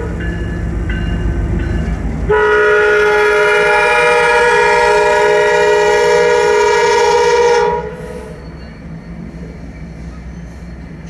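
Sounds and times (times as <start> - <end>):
locomotive air horn blast: 2.3 - 8.4.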